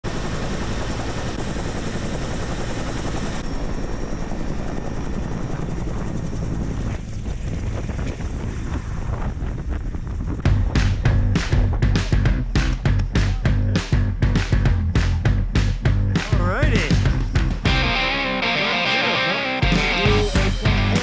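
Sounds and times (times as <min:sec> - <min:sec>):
helicopter rotor chop: 0:00.0 - 0:18.0
high turbine whine: 0:00.1 - 0:13.2
music: 0:10.4 - 0:21.0.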